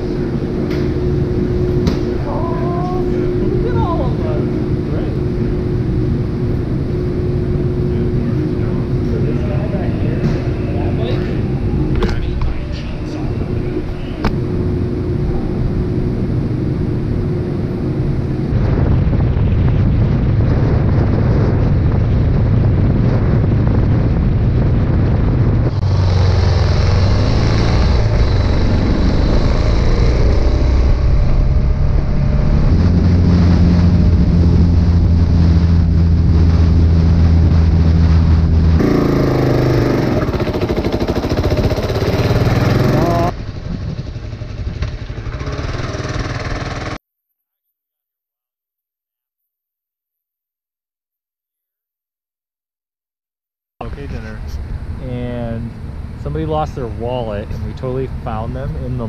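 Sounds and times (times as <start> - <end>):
wind rushing over microphone: 0.0 - 47.0
motorcycle engine running: 19.7 - 47.0.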